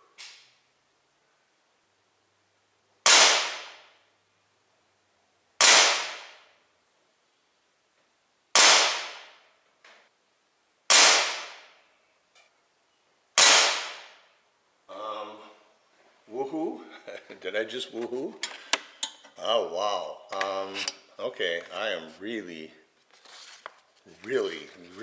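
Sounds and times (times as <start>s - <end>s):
pellet revolver shots: 3.0s - 4.0s, 5.6s - 6.4s, 8.6s - 9.4s, 10.9s - 11.8s, 13.4s - 14.2s.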